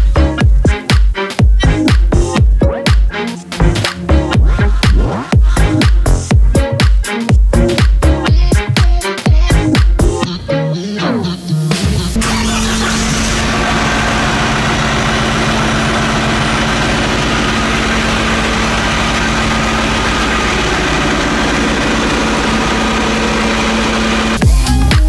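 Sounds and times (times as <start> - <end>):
diesel engine idling: 12.2 - 24.9.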